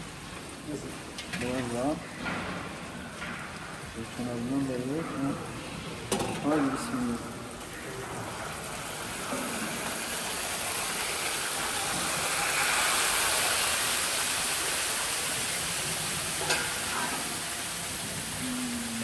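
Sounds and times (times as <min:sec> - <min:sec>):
sauce sizzling in pot: 0:05.8 - 0:18.5.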